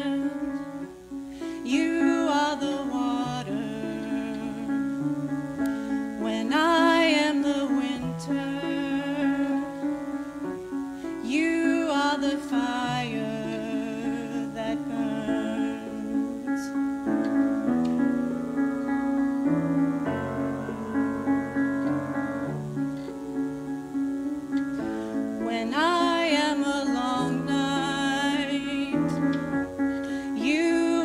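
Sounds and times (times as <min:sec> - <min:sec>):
woman singing: 0:00.0 - 0:17.2, 0:25.4 - 0:31.0
piano chords: 0:00.0 - 0:31.0.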